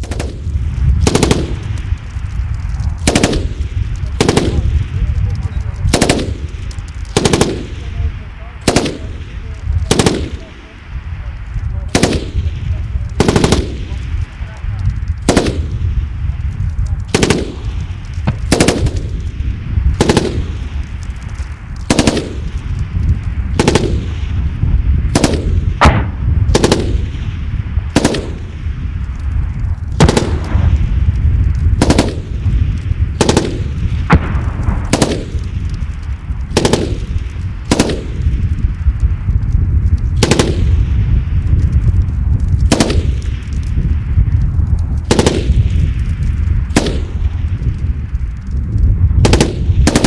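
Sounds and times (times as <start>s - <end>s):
steady low rumble: 0.0s - 50.0s
machine gun shots echoing: 3.0s - 3.6s, 7.2s - 7.8s, 8.6s - 9.2s, 11.9s - 12.5s, 13.2s - 14.0s, 18.3s - 19.1s, 25.2s - 27.0s, 28.0s - 28.5s, 30.0s - 30.6s, 33.2s - 35.4s, 36.6s - 37.1s.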